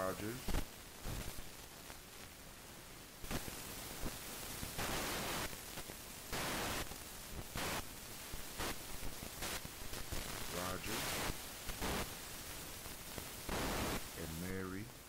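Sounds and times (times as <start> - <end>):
hiss and static: 0.0 - 15.0
bursts of noise: 8.5 - 15.0.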